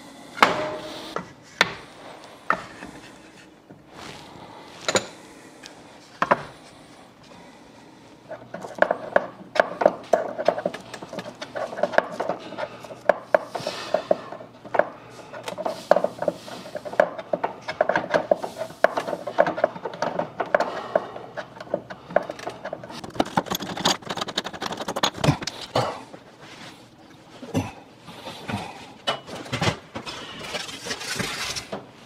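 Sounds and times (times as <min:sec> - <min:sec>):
clicks and knocks of screw work: 0:08.3 - 0:25.7.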